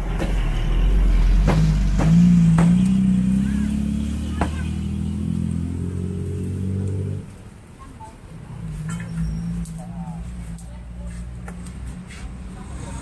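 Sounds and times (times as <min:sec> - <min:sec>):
vehicle engine running: 0:00.0 - 0:07.2.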